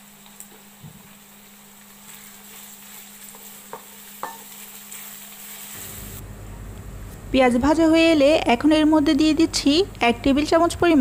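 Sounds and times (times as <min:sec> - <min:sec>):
onions sizzling in oil: 0:00.0 - 0:06.2
spoon tapping a pot: 0:03.7 - 0:04.5.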